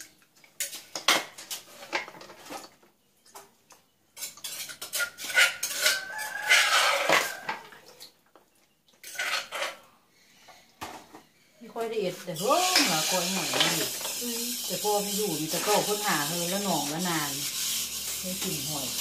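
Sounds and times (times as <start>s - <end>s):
snail shells clinking in metal bowl: 12.4s - 19.0s.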